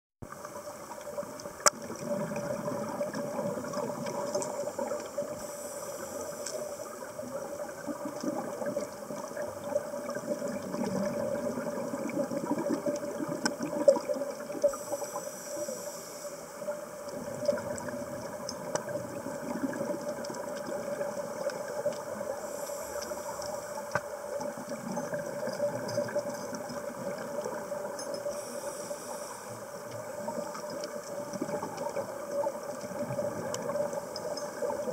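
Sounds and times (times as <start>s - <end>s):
exhaled bubbles underwater: 0.2s - 34.9s
steady underwater hum: 0.2s - 34.9s
regulator breath hiss: 5.3s - 7.0s, 14.7s - 16.7s, 22.3s - 23.8s, 28.3s - 29.8s.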